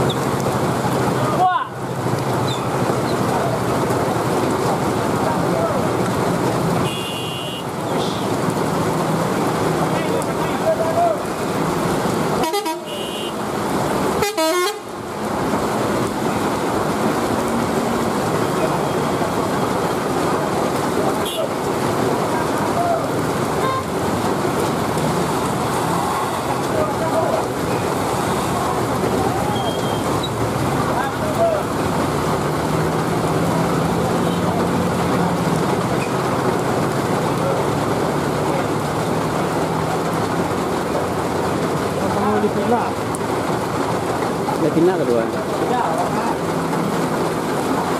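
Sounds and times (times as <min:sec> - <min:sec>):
heavy rain hissing: 0:00.0 - 0:47.9
waiting traffic: 0:00.0 - 0:47.9
vehicle horn honks: 0:06.8 - 0:07.7, 0:12.4 - 0:13.4, 0:14.2 - 0:14.8.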